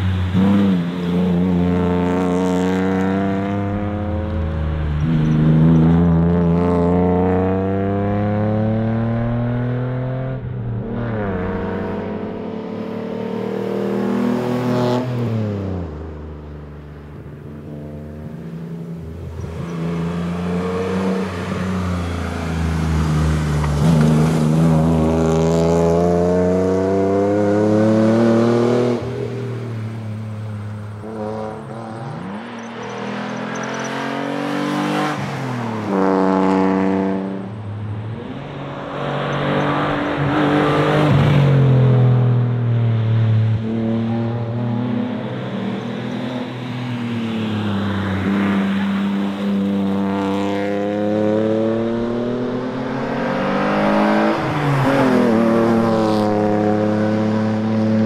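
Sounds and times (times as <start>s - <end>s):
rally car engine accelerating: 0.0s - 16.4s, 17.6s - 46.6s.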